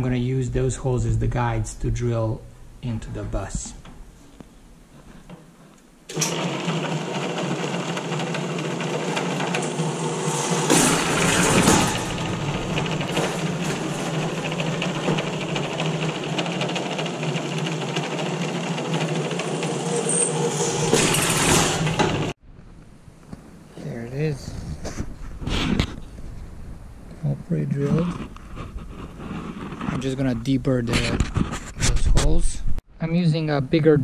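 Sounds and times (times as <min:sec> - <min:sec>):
drill press drilling sheet metal: 0:06.1 - 0:22.4.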